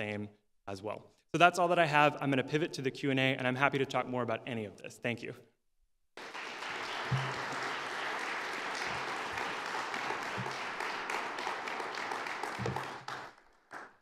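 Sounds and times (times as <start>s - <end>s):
audience applauding: 6.2s - 14.0s.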